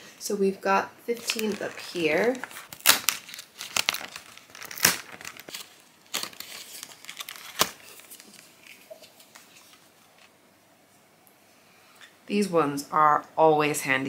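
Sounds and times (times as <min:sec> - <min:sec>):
cardboard crinkling and tearing: 0:01.2 - 0:10.3
cardboard snapping: 0:02.4 - 0:08.2.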